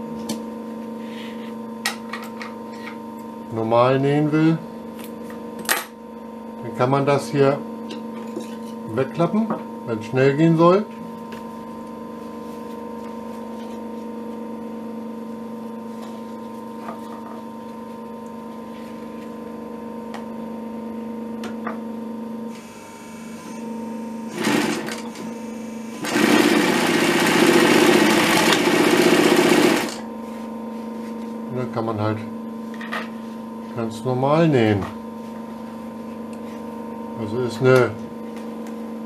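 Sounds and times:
sewing machine motor humming: 0:22.5 - 0:30.0
sewing machine stitching leather: 0:24.3 - 0:25.3, 0:26.0 - 0:30.0.

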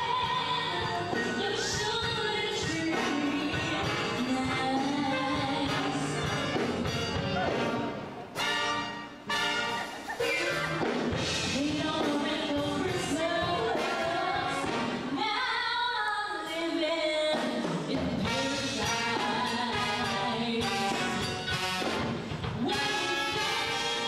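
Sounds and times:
woman singing: 0:00.0 - 0:06.6, 0:11.4 - 0:21.5, 0:22.6 - 0:24.0
live band playing: 0:00.0 - 0:15.2, 0:17.2 - 0:24.0.

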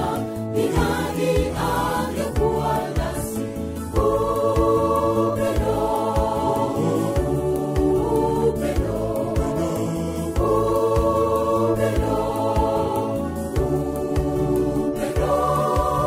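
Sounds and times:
choir singing in harmony: 0:00.0 - 0:16.0
low beat: 0:05.6 - 0:08.1.

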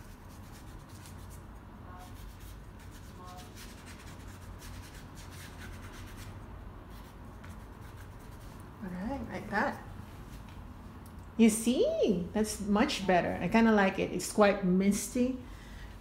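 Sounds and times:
paintbrush scratching on paper: 0:00.0 - 0:08.8
low steady hum: 0:00.0 - 0:16.0.

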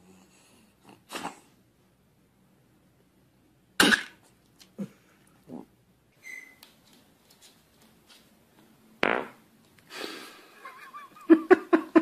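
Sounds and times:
fart: 0:09.0 - 0:09.4.

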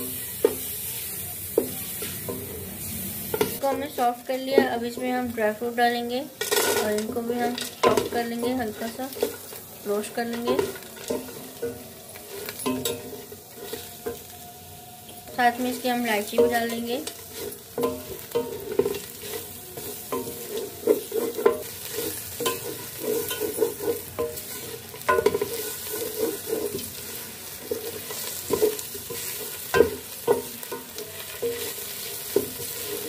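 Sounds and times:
light sizzle: 0:00.0 - 0:33.0
spatula scraping metal pot: 0:15.2 - 0:33.0.

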